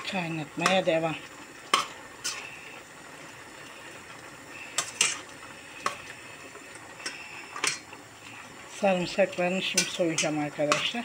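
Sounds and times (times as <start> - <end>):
metal spoon clinking on pot: 9.7 - 11.0.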